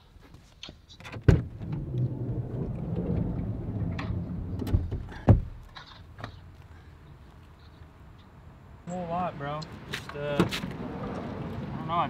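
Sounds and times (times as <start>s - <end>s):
knocks and bumps inside van: 1.1s - 6.4s.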